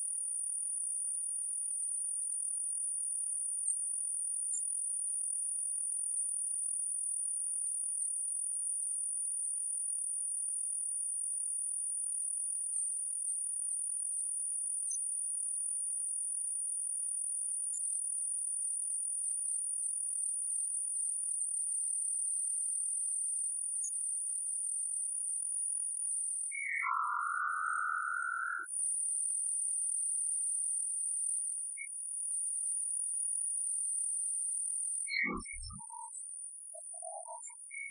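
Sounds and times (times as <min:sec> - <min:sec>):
steady high-pitched whine: 0:26.5 - 0:28.7.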